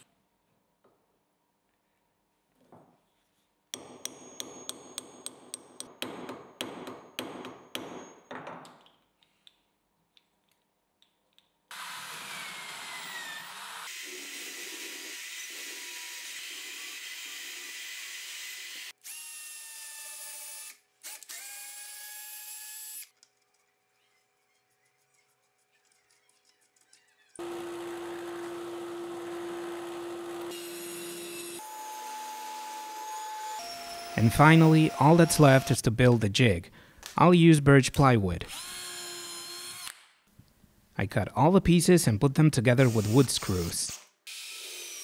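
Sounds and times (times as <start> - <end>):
drill press hole saw cutting wood: 11.7 - 19.2, 27.4 - 35.8.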